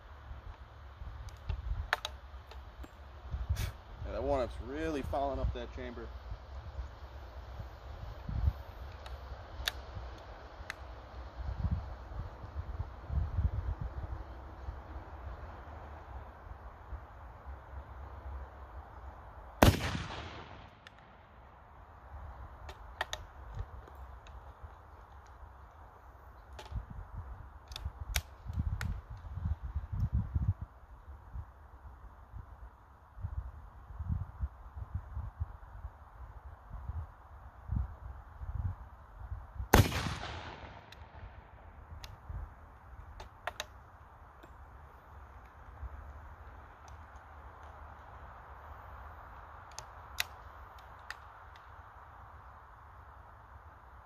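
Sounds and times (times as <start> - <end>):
rifle shot: 19.6 - 21.3, 39.7 - 41.6.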